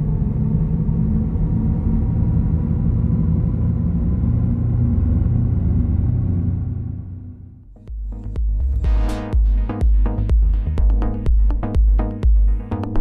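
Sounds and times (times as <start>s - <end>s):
low car rumble: 0.0s - 8.9s
deep electronic hum: 0.0s - 13.0s.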